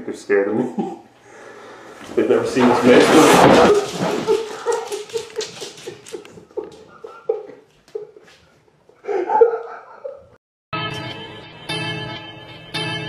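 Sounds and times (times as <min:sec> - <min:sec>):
man laughing: 0:00.6 - 0:01.1, 0:03.6 - 0:08.4, 0:09.0 - 0:10.4.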